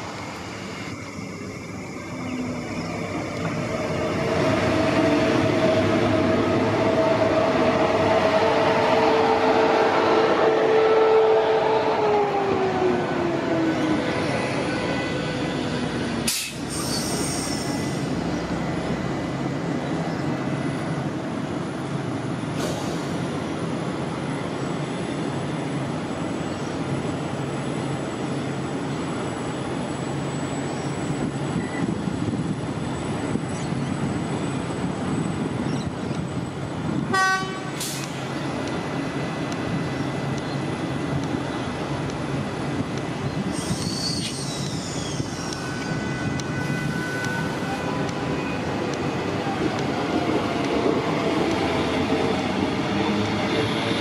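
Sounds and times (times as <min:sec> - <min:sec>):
train rumbling: 0:00.0 - 0:54.0
short high train toot: 0:43.6 - 0:48.6.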